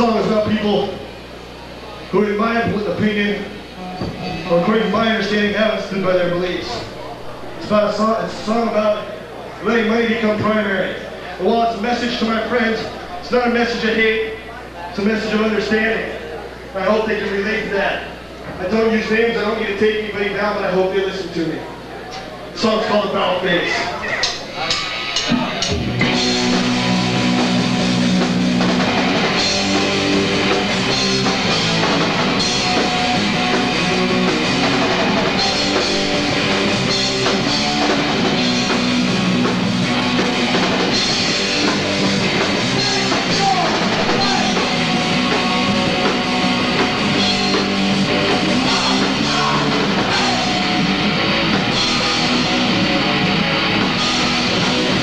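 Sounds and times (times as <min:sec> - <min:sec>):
punk band playing live: 0:24.6 - 0:55.0.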